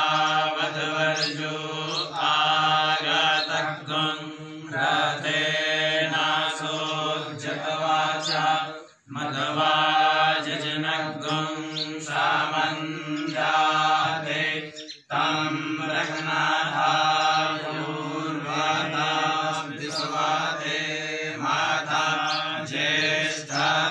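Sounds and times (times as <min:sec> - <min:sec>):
men chanting: 0:00.0 - 0:23.9.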